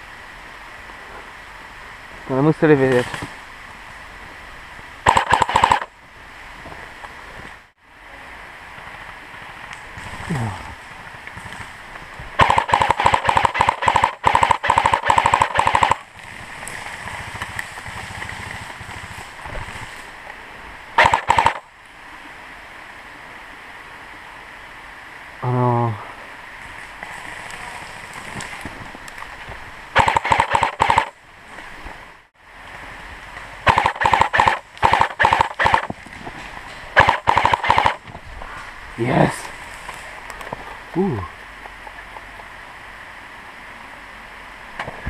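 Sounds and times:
airsoft gun firing bursts: 5.1s - 5.9s, 12.4s - 16.1s, 21.0s - 21.6s, 30.0s - 31.1s, 33.7s - 35.9s, 37.0s - 38.0s.

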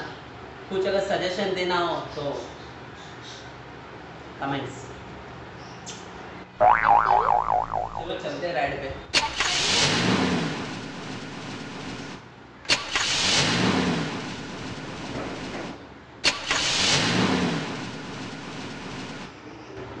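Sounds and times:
motorcycle engine start and rev: 16.3s - 18.0s.

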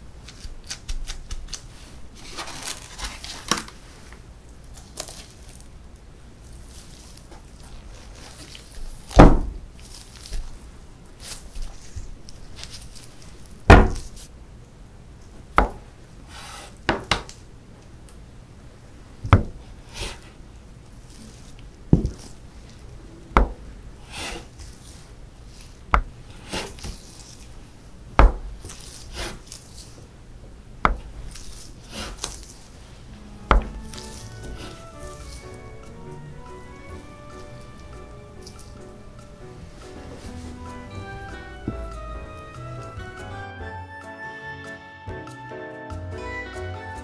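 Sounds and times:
soft sliding sounds: 28.7s - 30.1s, 31.2s - 38.6s, 39.6s - 41.7s.

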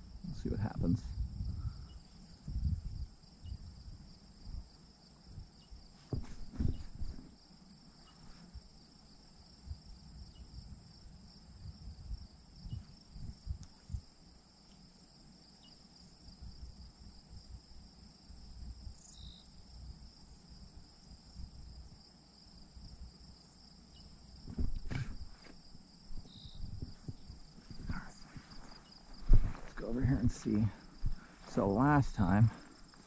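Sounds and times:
insect chorus in grass: 0.0s - 33.0s
low thumps and rustles: 5.3s - 7.5s, 24.3s - 33.0s.

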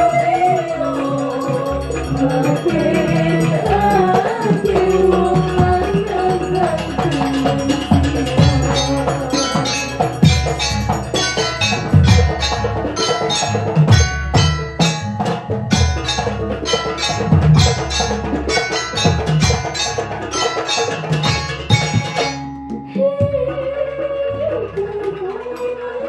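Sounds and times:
ringing pitched percussion: 0.0s - 23.4s
hand drums playing fast rhythm: 0.0s - 23.5s
music with held melody note: 0.0s - 26.0s.

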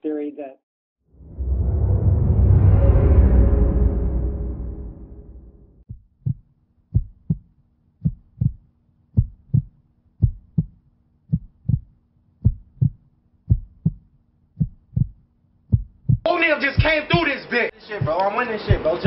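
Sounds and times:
low rumbling: 1.1s - 5.8s
heartbeat thumps: 5.9s - 8.6s, 9.2s - 19.0s.

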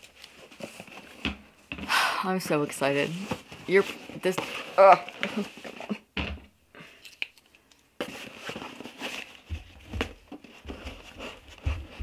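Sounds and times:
cardboard tearing and rustling: 0.0s - 1.2s, 3.1s - 6.0s, 8.0s - 12.0s.

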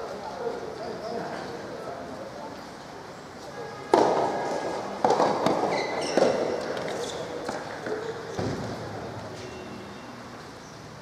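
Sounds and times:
shoe squeaks on court: 5.6s - 8.5s.

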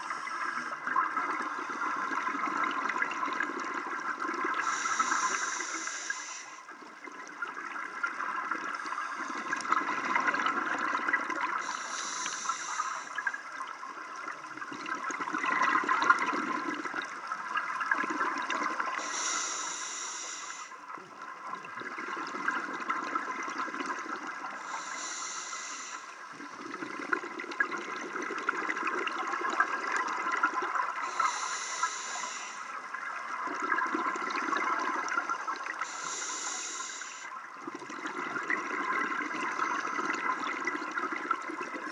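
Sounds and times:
exhaled breath bubbling: 0.0s - 6.7s, 8.6s - 13.4s, 18.0s - 20.8s, 21.8s - 41.9s
underwater crackle: 0.0s - 41.9s
regulator inhalation hiss: 4.5s - 6.7s, 11.6s - 13.2s, 18.8s - 20.8s, 24.5s - 26.3s, 31.0s - 32.8s, 35.8s - 37.4s.

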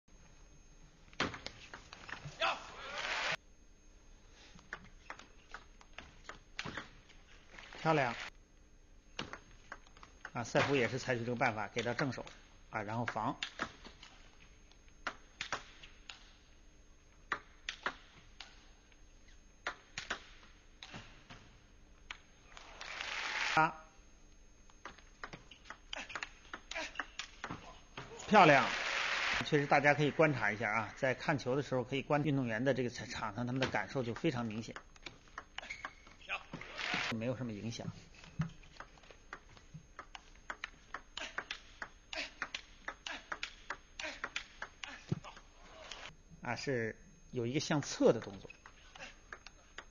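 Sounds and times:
table tennis ball clicking: 9.2s - 10.4s, 15.0s - 16.3s, 17.3s - 18.6s, 24.7s - 27.6s, 33.5s - 36.2s, 38.4s - 45.0s, 48.2s - 49.9s.

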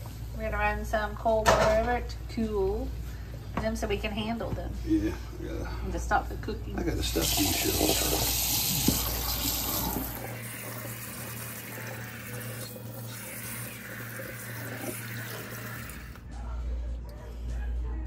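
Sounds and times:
faucet water splashing in sink: 7.1s - 16.2s.

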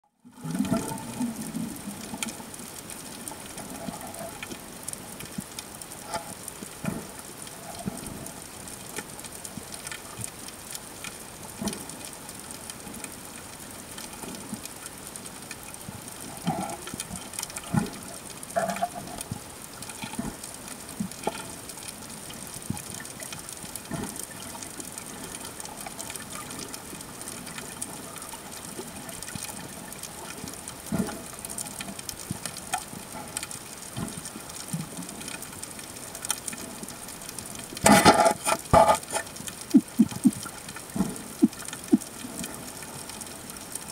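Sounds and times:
underwater clicks and knocks: 37.8s - 42.5s.

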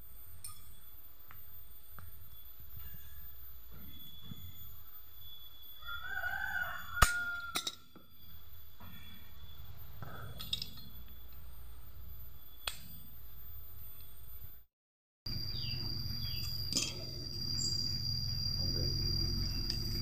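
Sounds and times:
rooster crowing: 5.8s - 8.0s
metal clinks of hand tools: 10.1s - 10.9s, 16.4s - 17.2s.

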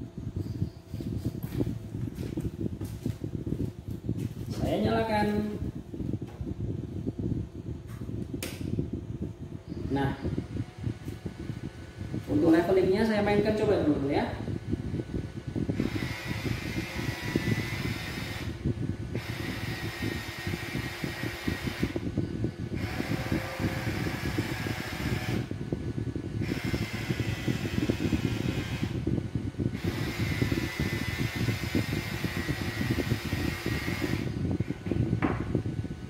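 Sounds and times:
steady hum: 0.0s - 36.0s
headlight motor whirring: 15.6s - 25.8s, 26.4s - 34.8s.

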